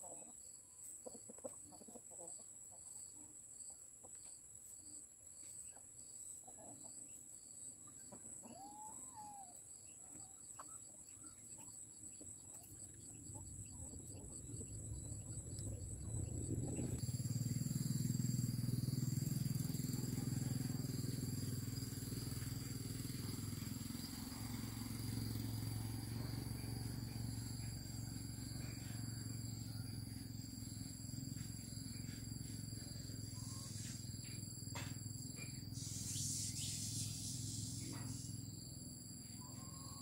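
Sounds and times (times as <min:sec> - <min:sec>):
insects chirring: 0:07.0 - 0:40.0
low steady rumble: 0:12.8 - 0:23.6.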